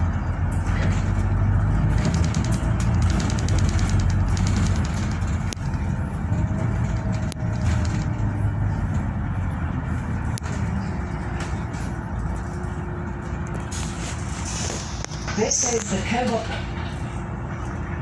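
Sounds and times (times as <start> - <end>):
bus engine and road rumble: 0.0 - 18.0
sharp rattles: 0.9 - 8.7.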